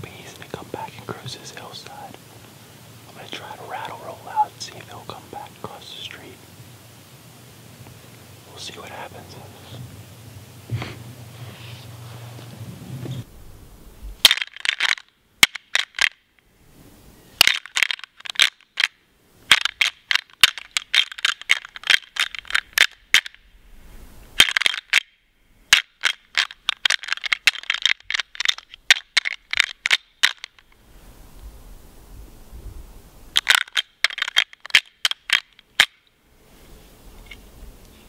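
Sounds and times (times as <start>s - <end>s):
deer rattling call clacking: 3.2s - 6.4s, 14.2s - 16.2s, 17.4s - 23.4s, 24.4s - 25.1s, 25.7s - 30.7s, 33.4s - 36.1s.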